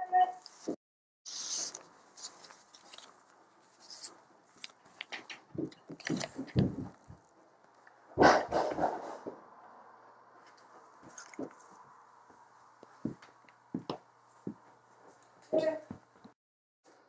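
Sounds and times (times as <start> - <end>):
plastic sleeve crinkling and clicking: 1.7 - 6.7.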